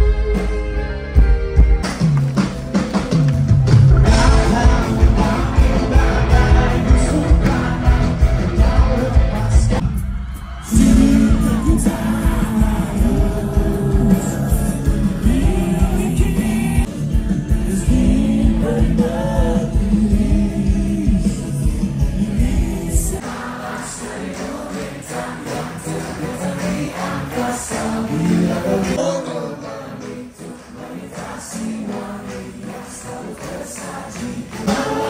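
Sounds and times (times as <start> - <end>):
live rock band playing: 0.0 - 23.5
person singing: 4.0 - 10.0, 10.6 - 30.9.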